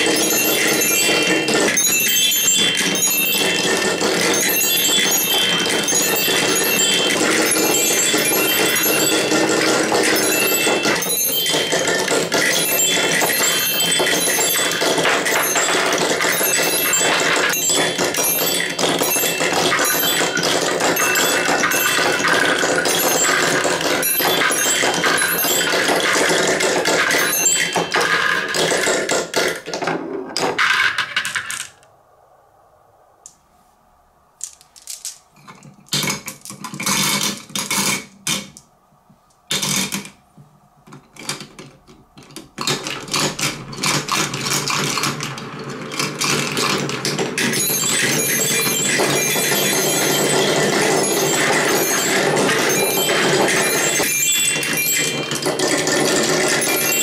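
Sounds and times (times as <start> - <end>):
marbles rattling in tube: 0.0 - 29.6, 42.8 - 57.0
marbles rolling on wooden track: 0.0 - 31.9, 34.4 - 38.6, 39.5 - 40.2, 40.9 - 57.0
marbles dropped into funnel: 34.4 - 35.3.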